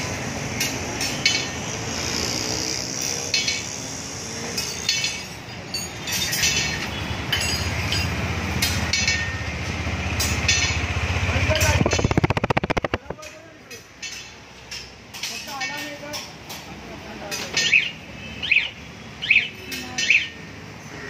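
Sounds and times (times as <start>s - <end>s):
street traffic noise: 0.0s - 21.0s
sharp metallic clinks and taps: 0.6s - 1.6s, 3.0s - 3.8s, 4.5s - 10.9s, 11.6s - 16.7s.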